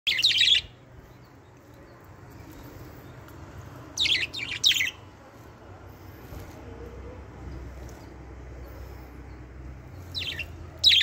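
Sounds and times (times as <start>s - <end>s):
budgerigars chirping: 0.1s - 1.5s, 4.0s - 5.1s, 7.6s - 11.0s.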